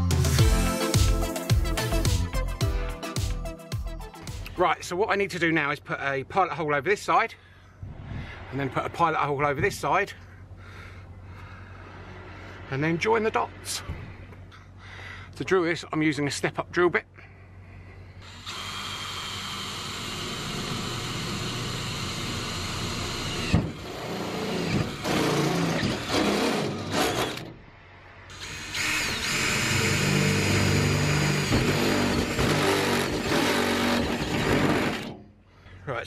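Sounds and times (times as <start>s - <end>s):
drill boring through sheet metal: 18.2s - 27.5s, 28.3s - 35.2s.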